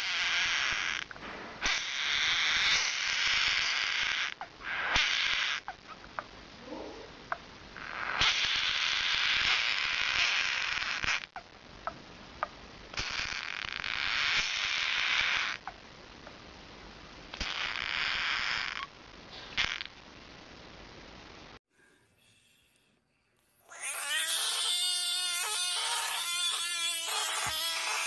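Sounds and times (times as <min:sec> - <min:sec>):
frog screaming: 0:00.0 - 0:05.8, 0:07.8 - 0:11.4, 0:13.0 - 0:15.7, 0:17.4 - 0:18.9, 0:23.6 - 0:28.0
faint frog chirps: 0:00.0 - 0:06.3, 0:07.3 - 0:15.8, 0:17.3 - 0:19.0.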